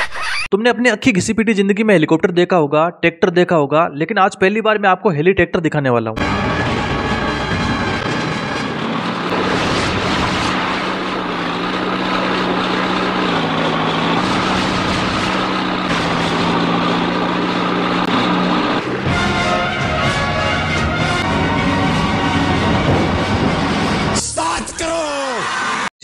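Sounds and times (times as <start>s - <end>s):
tractor engines droning: 6.2s - 25.9s.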